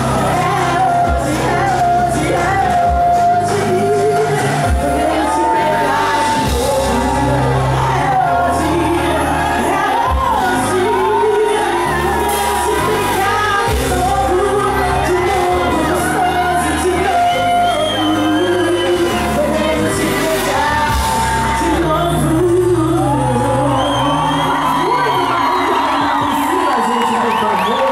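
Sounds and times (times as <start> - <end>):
live band amplified: 0.0 - 27.9.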